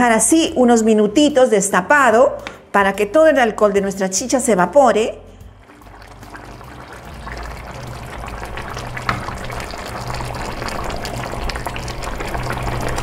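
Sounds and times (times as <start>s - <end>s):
stew bubbling in a pot: 5.6s - 13.0s
wooden spoon stirring: 5.6s - 13.0s.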